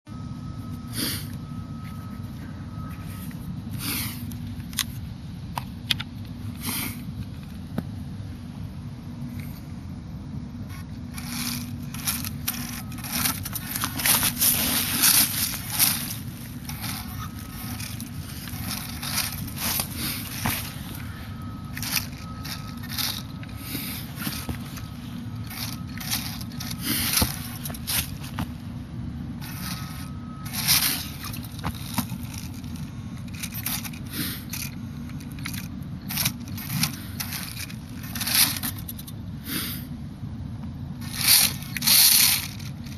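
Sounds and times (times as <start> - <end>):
faint thin whine: 0.1 - 39.3
steady low rumble: 0.1 - 42.9
toy truck tyres crunching pine needles: 10.6 - 39.8, 40.9 - 42.9
rustling in dry leaves: 10.7 - 28.7, 29.4 - 39.0, 41.0 - 42.9.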